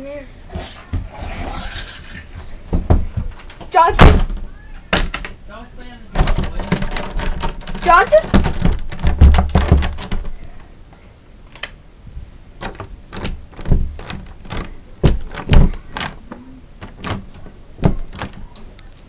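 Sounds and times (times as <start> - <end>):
irregular knocks and thumps: 2.3 - 5.4, 6.1 - 10.4, 12.6 - 18.6.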